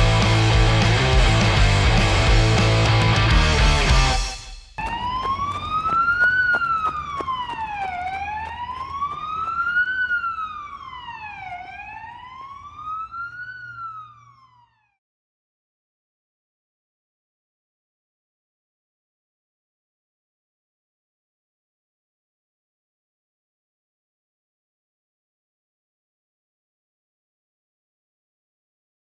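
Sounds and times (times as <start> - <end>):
electric guitar and drums: 0.0 - 4.8
siren wailing: 4.7 - 15.0.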